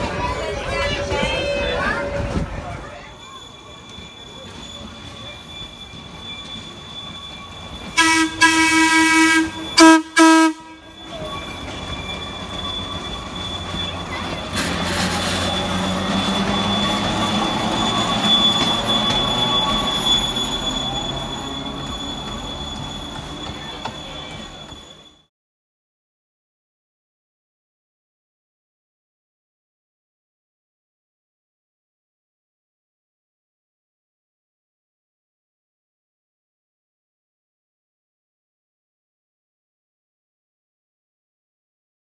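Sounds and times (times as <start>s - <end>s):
streetcar wheels rumbling on rails: 0.0s - 25.3s
streetcar horn blasts: 8.0s - 11.0s.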